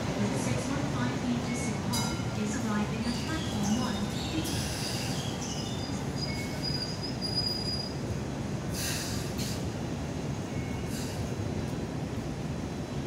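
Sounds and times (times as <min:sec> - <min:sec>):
light rail car rumbling: 0:00.0 - 0:13.0
faint high wheel squeal: 0:03.1 - 0:08.0
short hissing bursts: 0:08.7 - 0:09.6.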